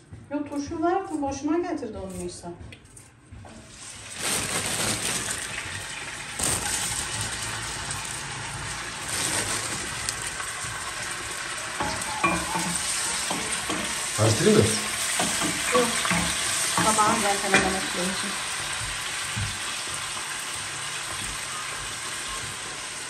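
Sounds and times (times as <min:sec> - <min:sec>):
vegetables sizzling in oil: 0:03.6 - 0:23.0
spoon scraping a pan: 0:11.7 - 0:18.4.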